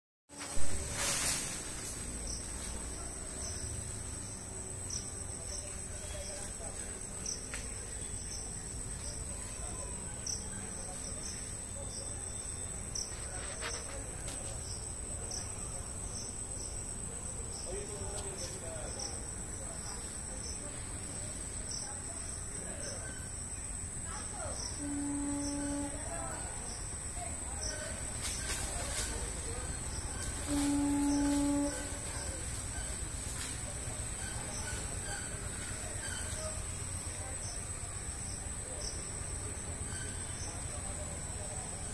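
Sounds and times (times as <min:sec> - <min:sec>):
insects trilling: 0:00.3 - 0:41.9
short insect chirps: 0:00.3 - 0:41.9
high-pitched insect drone: 0:18.9 - 0:28.4.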